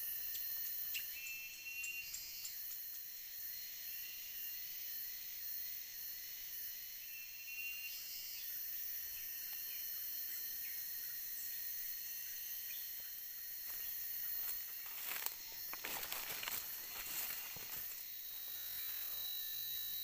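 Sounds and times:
insect chorus whine: 0.0s - 20.0s.

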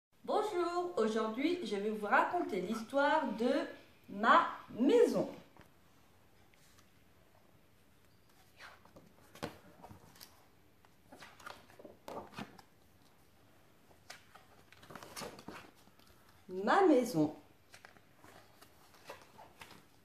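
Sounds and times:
cardboard pages turning: 8.4s - 13.3s, 13.9s - 16.5s, 17.6s - 20.0s.

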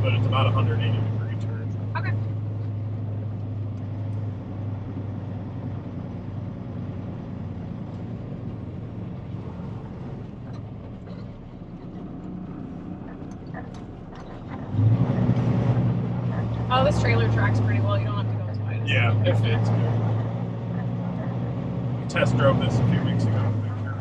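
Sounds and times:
diesel truck engine droning: 0.0s - 24.0s.

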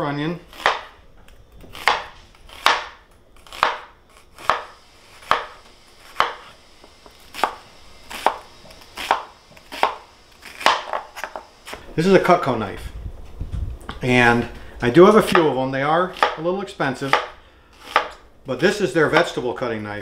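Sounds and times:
knife chopping on wooden board: 0.5s - 1.0s, 1.6s - 6.5s, 7.3s - 11.8s, 15.2s - 16.4s, 17.0s - 18.2s.

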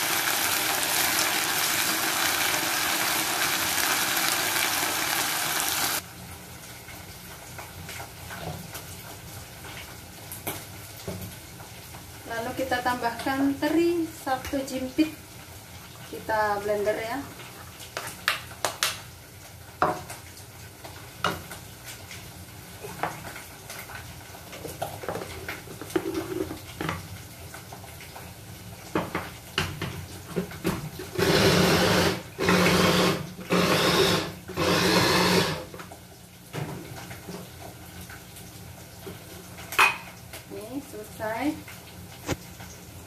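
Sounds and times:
food chopper motor pulsing: 31.1s - 35.7s.

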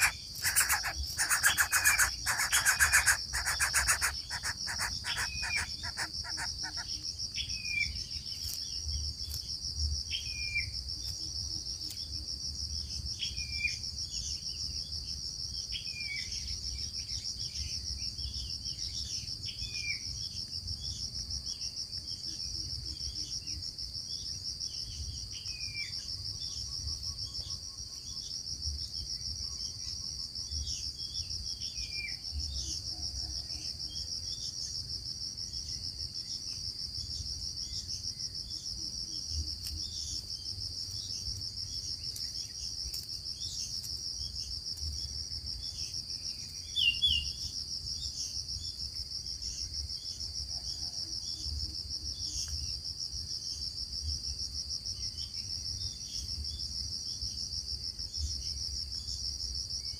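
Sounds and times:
bird chirps: 0.0s - 9.0s, 45.7s - 47.5s
insects trilling: 0.0s - 59.9s.

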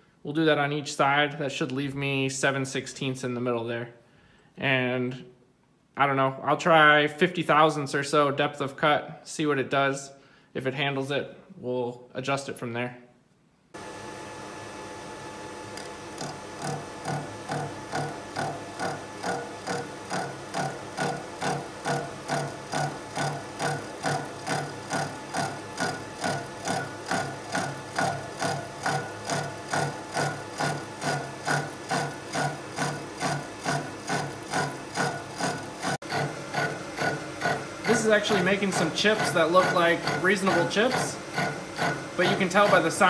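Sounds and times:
milling machine grinding metal: 13.8s - 43.0s.

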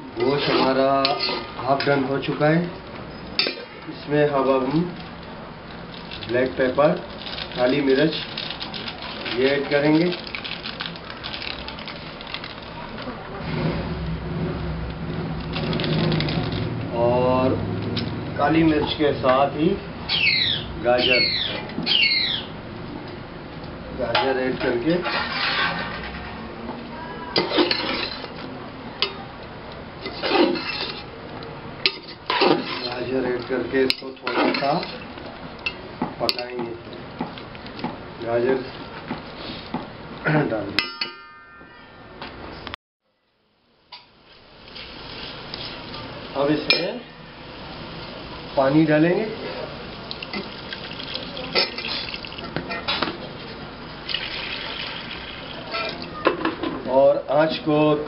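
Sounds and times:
spoon scraping metal pot: 25.0s - 26.4s
metal spoon clinking in pot: 40.8s - 41.9s
water pouring into a pot: 44.3s - 46.4s, 47.9s - 52.6s, 53.9s - 56.1s.

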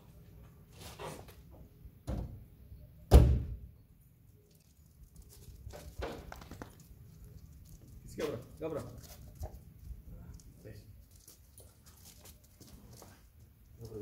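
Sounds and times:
car boot lid slamming: 3.1s - 3.6s.

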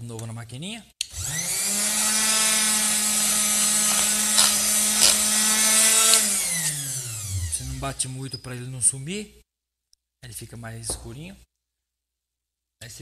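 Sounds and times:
milkshake mixer motor whining: 1.1s - 7.7s.

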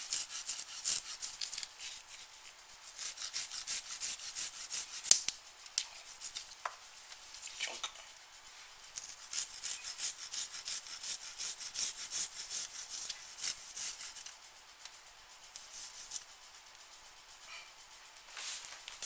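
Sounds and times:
garlic grated on metal zester: 0.0s - 2.2s, 2.9s - 5.2s, 9.0s - 14.3s.

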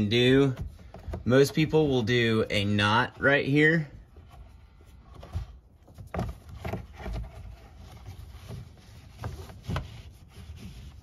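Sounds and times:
strap webbing rustling: 4.0s - 11.0s.

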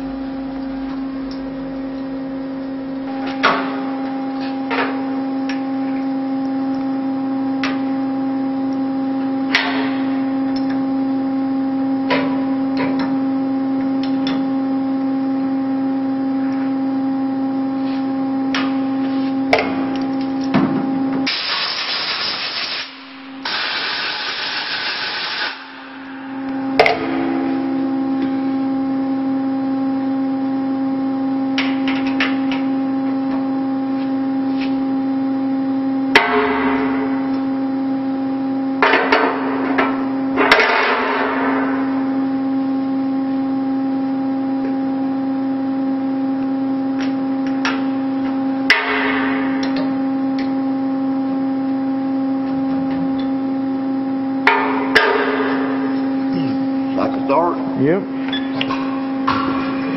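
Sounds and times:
milling machine humming: 0.0s - 40.4s, 49.4s - 59.9s.

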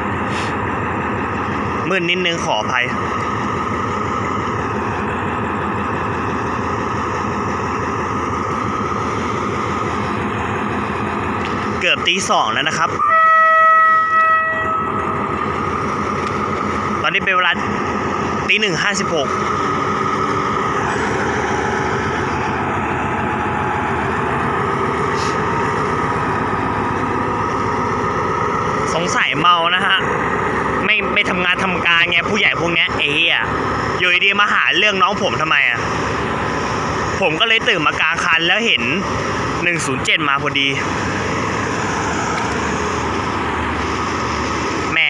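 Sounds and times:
diesel locomotive idling: 0.0s - 45.0s.

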